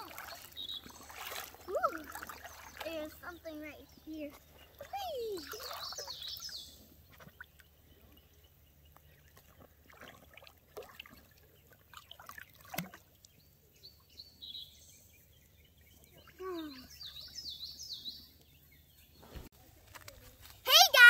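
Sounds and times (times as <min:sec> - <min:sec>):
faint water splashes: 0:00.0 - 0:14.4, 0:15.4 - 0:18.4
creek water trickling: 0:00.0 - 0:18.7
bird chirps: 0:00.3 - 0:09.4, 0:13.3 - 0:19.5.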